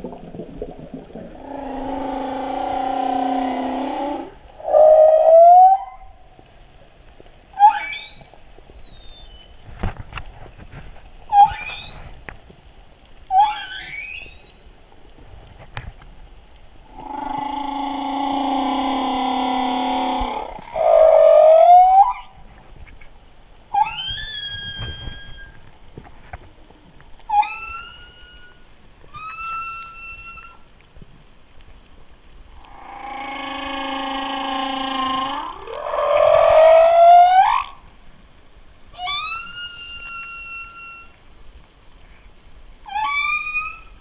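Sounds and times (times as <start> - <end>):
humpback whale song: 0.0 - 6.2, 7.5 - 9.6, 11.3 - 12.2, 13.3 - 15.0, 16.9 - 22.4, 23.7 - 25.7, 27.2 - 30.8, 32.5 - 38.0, 38.9 - 41.3, 42.8 - 44.0.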